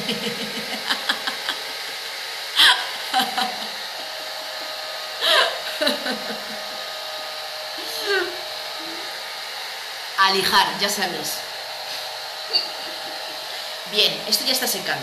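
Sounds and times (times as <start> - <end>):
woman laughing: 0.0 - 2.0, 2.6 - 4.1, 5.2 - 6.8, 7.8 - 8.4, 12.5 - 13.8
hair dryer blowing: 0.0 - 15.0.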